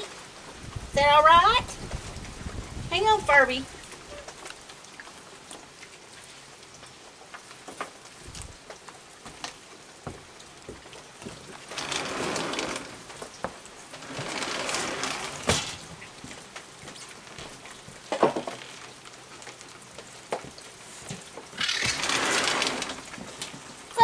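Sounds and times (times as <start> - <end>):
rain on wooden deck: 0.0 - 24.0
loud rustling: 11.7 - 13.1, 13.9 - 15.9, 21.6 - 23.6
small clicks and knocks: 16.6 - 23.7.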